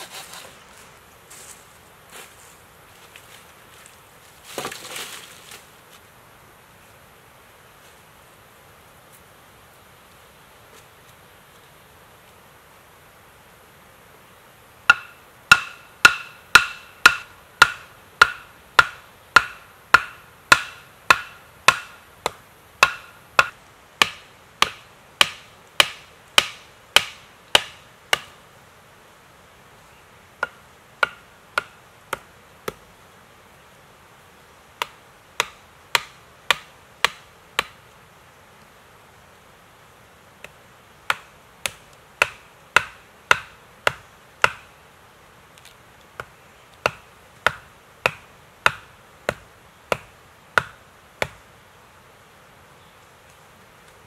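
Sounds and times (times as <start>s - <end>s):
tool striking wood: 14.9s - 28.3s.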